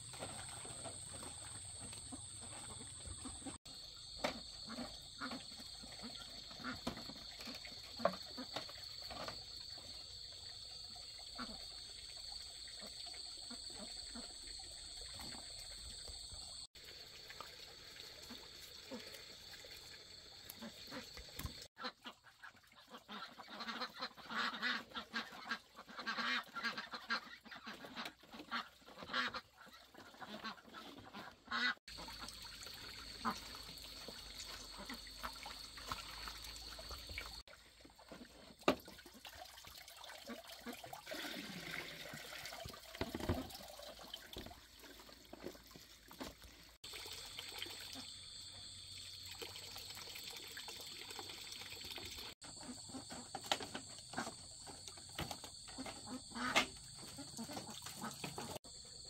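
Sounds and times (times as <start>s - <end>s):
ducks or geese quacking and honking: 21.8s - 32.4s, 52.6s - 58.6s.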